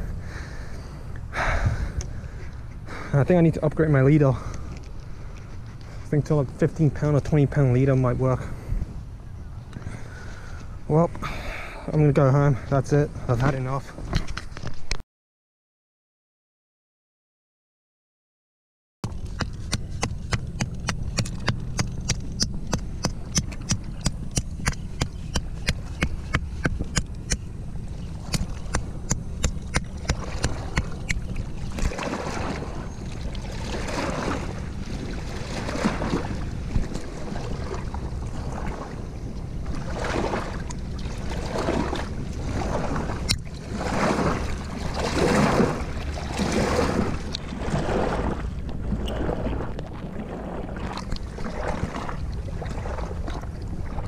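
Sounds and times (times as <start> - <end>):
wind rumbling on microphone: 0.0 - 12.1, 19.0 - 54.0
water lapping against rocks: 19.0 - 54.0.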